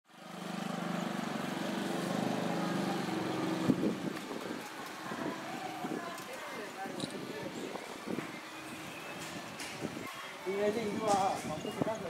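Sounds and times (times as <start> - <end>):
small engine running: 0.1 - 3.8
voices: 2.3 - 12.0.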